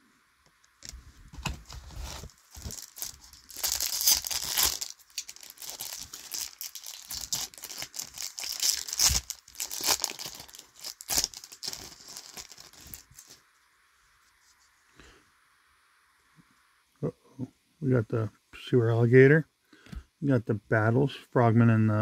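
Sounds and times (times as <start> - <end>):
wrapper tearing and crinkling: 1.6 - 13.4.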